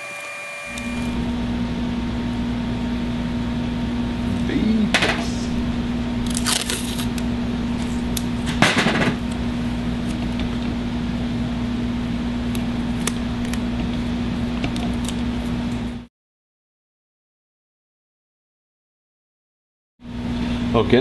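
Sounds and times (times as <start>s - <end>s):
steady low hum: 0.0s - 16.1s, 20.0s - 21.0s
masking tape pulled off roll: 6.3s - 7.2s.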